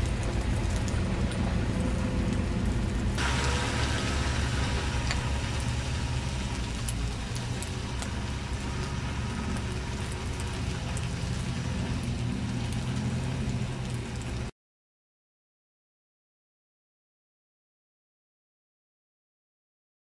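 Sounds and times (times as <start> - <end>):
van engine under load: 0.0 - 14.5
mud spattering: 3.2 - 14.4.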